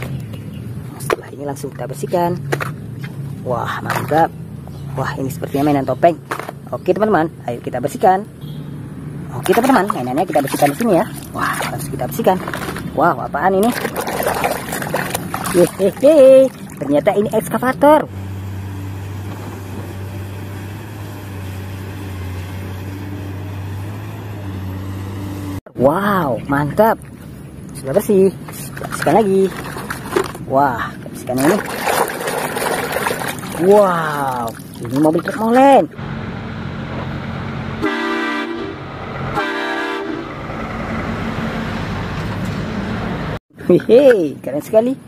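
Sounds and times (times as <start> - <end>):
truck air horn blasts: 8.4 - 8.8, 37.8 - 40.4
diesel truck engine running: 15.2 - 25.6, 35.4 - 43.4
excavator diesel engine running: 36.0 - 39.4.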